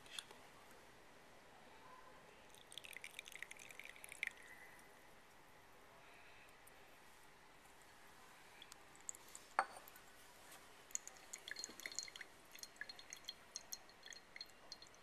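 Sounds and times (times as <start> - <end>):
liquid dripping into glass flask: 2.5 - 4.6, 10.9 - 15.0.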